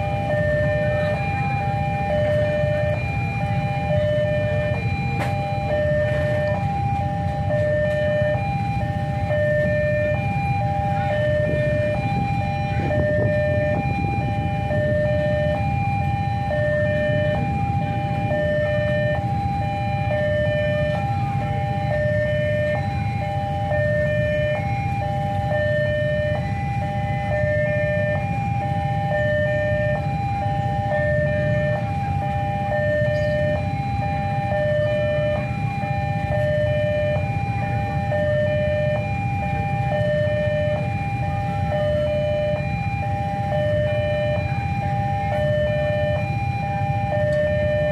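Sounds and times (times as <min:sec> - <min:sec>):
two-note level crossing alarm: 0:00.0 - 0:47.9.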